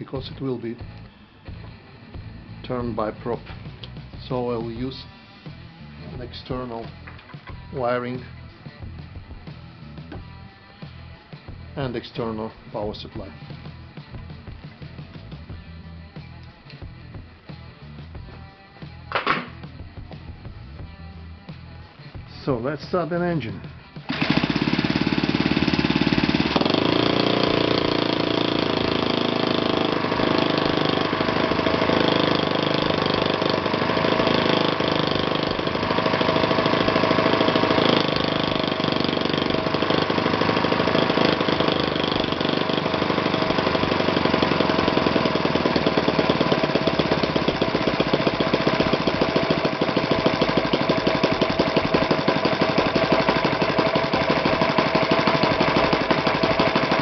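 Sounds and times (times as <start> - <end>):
electric starter spinning: 0.0 - 15.5, 22.5 - 57.0
model engine running: 24.0 - 57.0.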